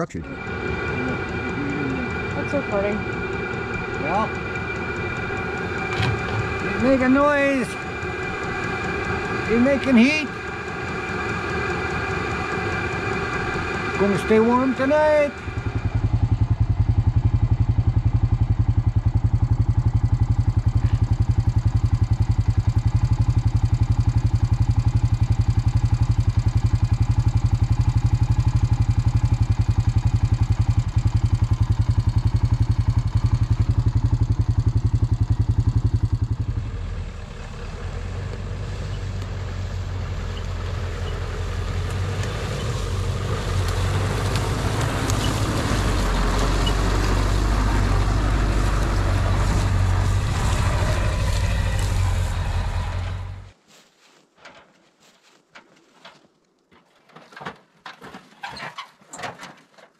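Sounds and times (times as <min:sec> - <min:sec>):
motor running with fast pulsing: 0:00.0 - 0:36.6
rougher motor running sound: 0:00.0 - 0:53.6.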